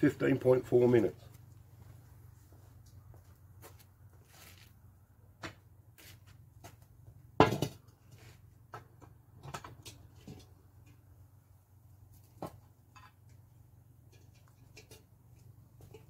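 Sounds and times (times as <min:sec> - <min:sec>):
cast iron pot knocks and clanks: 0:07.3 - 0:08.0, 0:14.0 - 0:15.1, 0:15.7 - 0:16.0.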